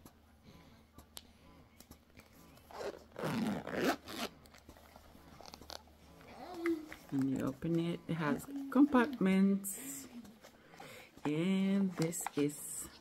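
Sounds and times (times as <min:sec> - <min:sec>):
zipper being pulled open: 0:02.7 - 0:05.9.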